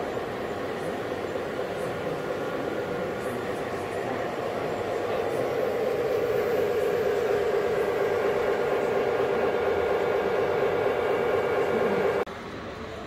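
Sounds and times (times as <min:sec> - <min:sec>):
engine-like rumble with fast flutter: 0:00.0 - 0:12.3.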